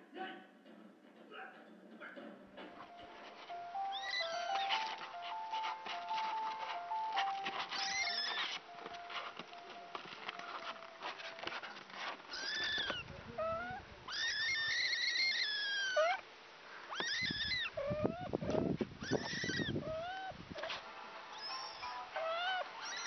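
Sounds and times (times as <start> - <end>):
kittens mewing: 3.8 - 5.5, 7.2 - 8.6, 12.3 - 20.8, 21.4 - 23.0.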